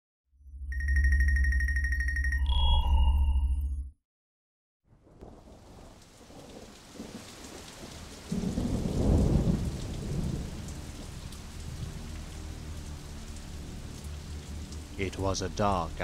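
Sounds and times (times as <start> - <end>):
thunder rumbling: 4.9 - 12.9
steady rain: 5.0 - 16.0.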